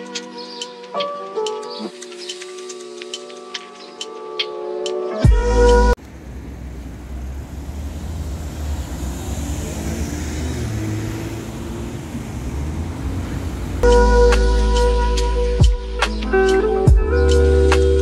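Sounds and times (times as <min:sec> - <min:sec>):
cars driving past: 0:05.5 - 0:14.9.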